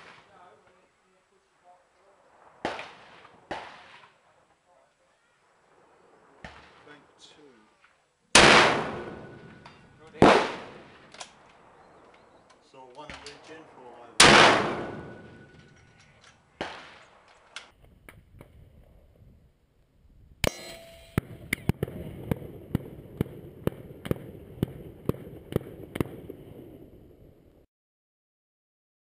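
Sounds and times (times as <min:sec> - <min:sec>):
rifle shot echo: 0:00.0 - 0:00.6, 0:02.3 - 0:04.2, 0:06.2 - 0:07.1, 0:08.3 - 0:12.4, 0:13.1 - 0:16.0, 0:16.6 - 0:17.3, 0:20.4 - 0:27.4
steady outdoor hiss: 0:00.0 - 0:27.3
sharp cracks and clicks: 0:11.1 - 0:13.4, 0:20.4 - 0:23.3.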